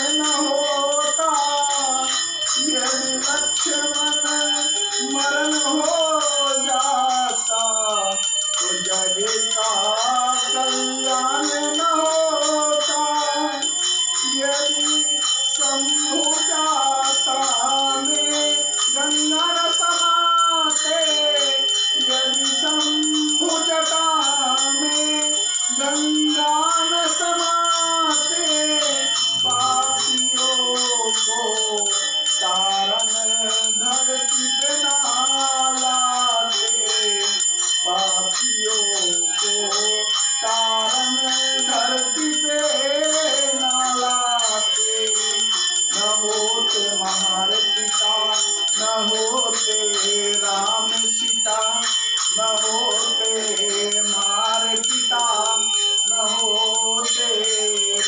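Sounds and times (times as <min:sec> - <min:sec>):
high metallic bell ringing: 0:00.0 - 0:58.0
person singing devotional song: 0:00.0 - 0:58.0.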